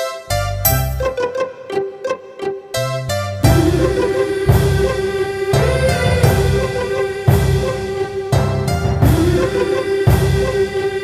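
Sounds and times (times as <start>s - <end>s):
plucked instrumental notes: 0.0s - 6.4s.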